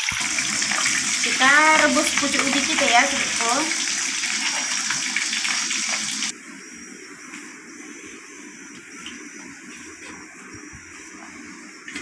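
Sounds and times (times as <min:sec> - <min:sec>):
water pouring into metal wok: 0:00.0 - 0:06.3.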